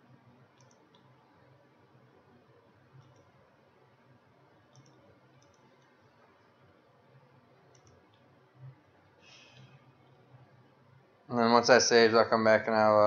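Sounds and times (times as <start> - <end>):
computer mouse clicks: 0.5 - 1.2, 2.9 - 3.4, 4.6 - 6.4, 7.6 - 8.4, 9.4 - 10.3.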